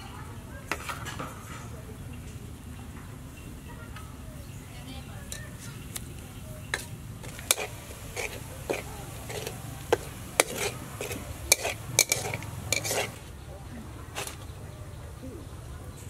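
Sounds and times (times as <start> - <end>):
garlic frying in oil: 6.6 - 13.3
metal spatula scraping a wok: 6.7 - 13.3.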